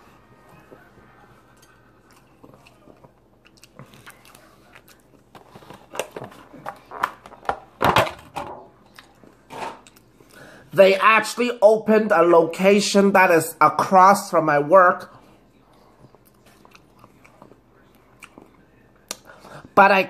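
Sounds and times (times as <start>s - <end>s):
person chewing food: 0.1s - 7.4s, 8.8s - 10.7s, 15.2s - 19.8s.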